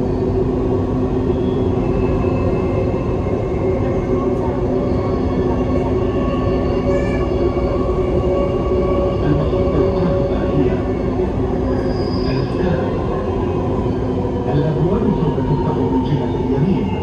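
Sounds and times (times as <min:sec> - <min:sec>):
train rolling rumble: 0:00.0 - 0:17.0
wheel squeal: 0:11.8 - 0:12.6.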